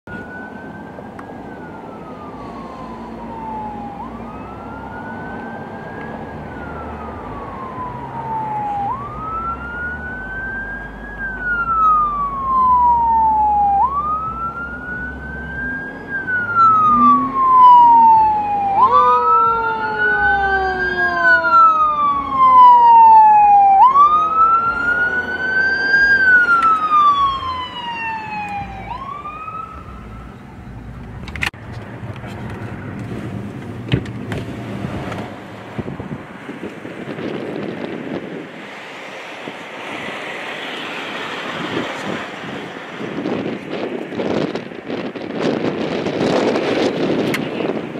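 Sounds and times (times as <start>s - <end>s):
fire engine siren wailing: 0.1s - 30.9s, 37.0s - 47.8s
lower siren tone gliding down: 0.1s - 31.0s.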